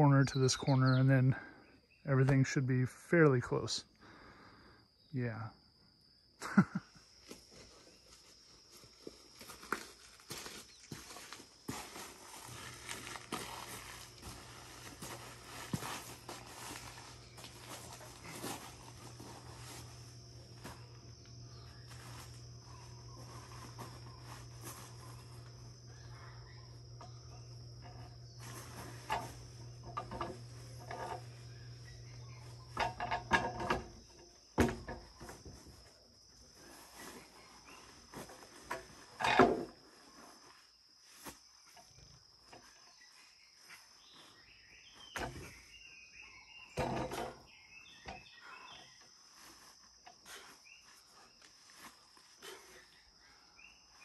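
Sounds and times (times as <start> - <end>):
insect trilling: 10.1 - 35.5
low steady hum: 11.7 - 35.8
sharp knocks and clatter: 32.7 - 35.6.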